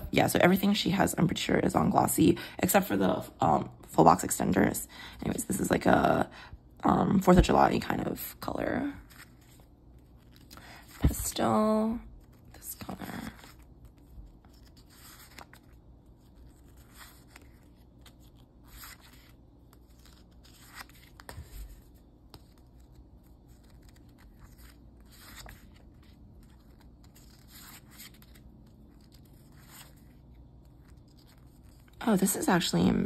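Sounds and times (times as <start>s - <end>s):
sticker sheets rustling: 9.0s - 32.4s.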